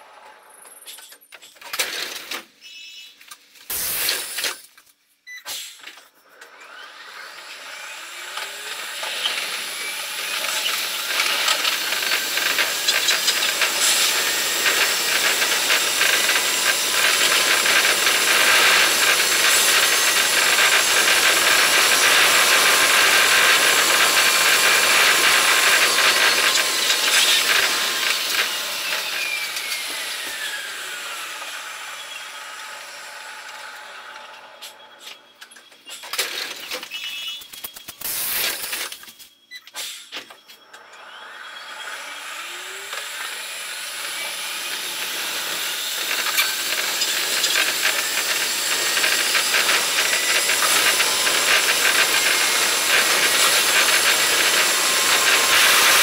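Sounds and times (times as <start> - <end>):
electric train motor whine: 6.3 - 36.6, 40.3 - 56.0
train hissing rush: 9.5 - 30.7, 44.4 - 56.0.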